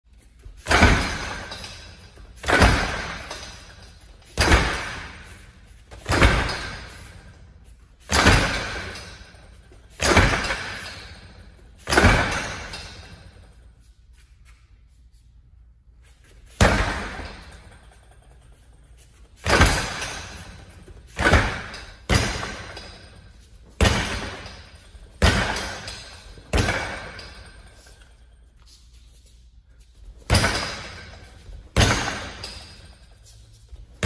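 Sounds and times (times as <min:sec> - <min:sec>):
strikes on wooden training dummy: 0:00.6 - 0:13.6, 0:16.5 - 0:18.5, 0:19.3 - 0:28.2, 0:30.2 - 0:33.3.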